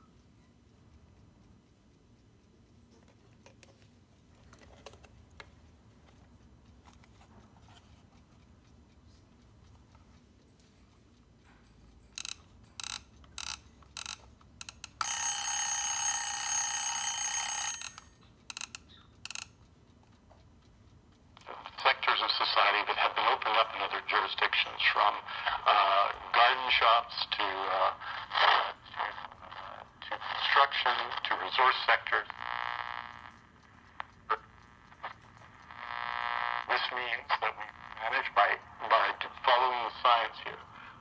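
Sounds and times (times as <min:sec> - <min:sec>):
clock radio alarm: 0:15.0 - 0:18.2, 0:21.4 - 0:41.0.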